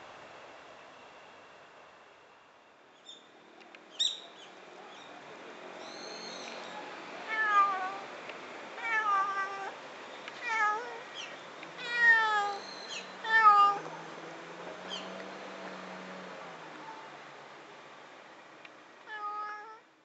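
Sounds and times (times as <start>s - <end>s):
cat meowing: 7.3s - 8.0s, 8.8s - 9.8s, 10.4s - 11.1s, 11.8s - 12.6s, 13.2s - 13.9s, 19.1s - 19.8s.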